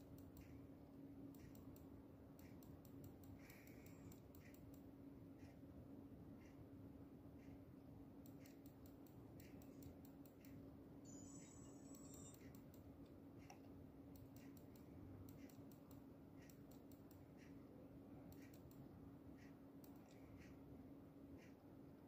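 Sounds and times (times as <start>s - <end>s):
computer mouse clicks: 0.0s - 0.6s, 1.3s - 5.6s, 8.2s - 10.6s, 11.2s - 17.6s, 18.2s - 20.6s
low steady hum: 0.0s - 22.0s
faint high tone: 11.0s - 12.4s.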